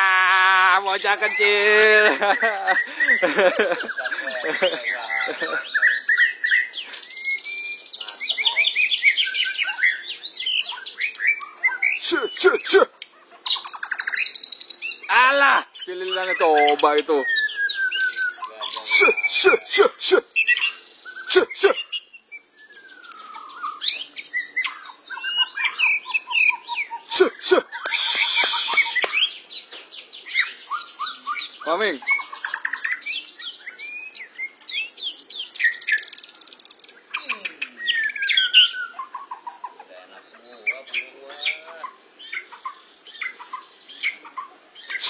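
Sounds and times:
birds singing: 0:00.0 - 0:45.0
harsh hissing burst: 0:27.1 - 0:29.2.

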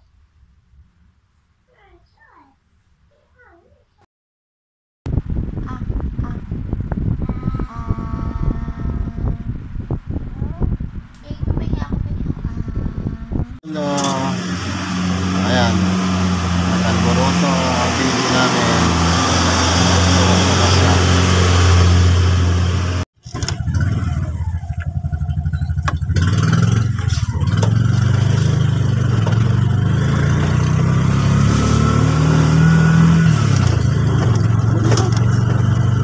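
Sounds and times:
small motorcycle engine running: 0:12.4 - 0:36.0.

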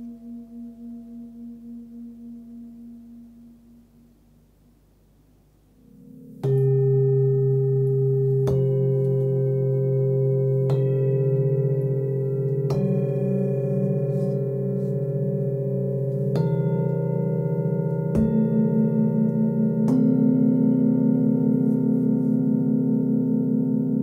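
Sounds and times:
singing bowls ringing: 0:05.8 - 0:24.0.

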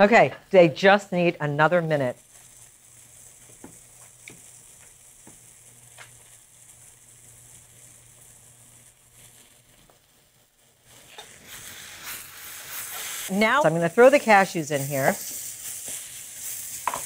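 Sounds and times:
mushrooms sizzling in a pan: 0:01.0 - 0:17.0.

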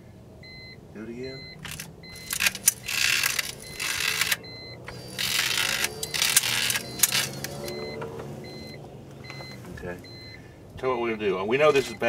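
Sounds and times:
grinding noise: 0:01.6 - 0:08.7
window motor humming: 0:01.6 - 0:10.0.

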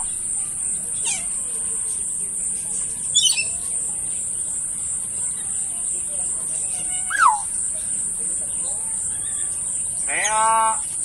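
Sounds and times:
high animal chirps: 0:00.0 - 0:00.2, 0:06.8 - 0:07.5.

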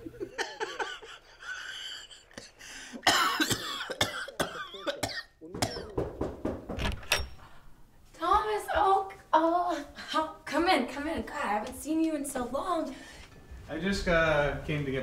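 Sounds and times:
person coughing: 0:02.9 - 0:06.0.

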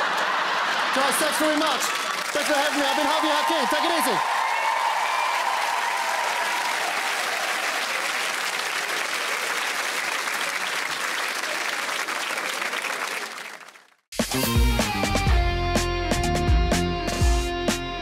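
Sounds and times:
studio audience applauding: 0:00.0 - 0:14.1.

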